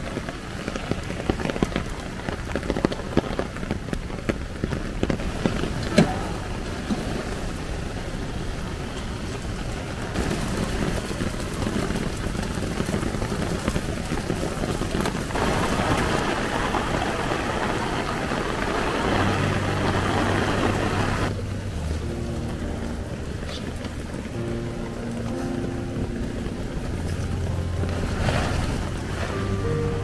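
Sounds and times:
heavy rain hissing: 0.0 - 30.0.

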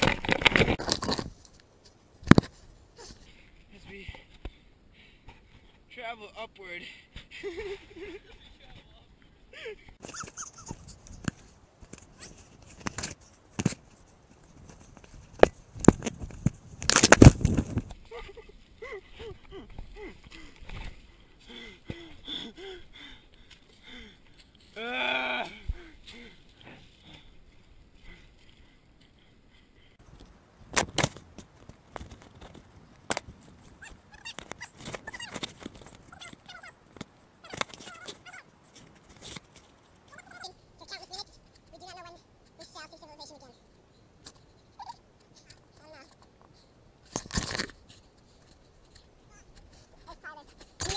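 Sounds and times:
camera knocking and rubbing: 10.1 - 18.0
twigs snapping: 14.7 - 18.0, 30.1 - 36.1
sharp cracks: 15.4 - 17.9, 30.7 - 33.5.

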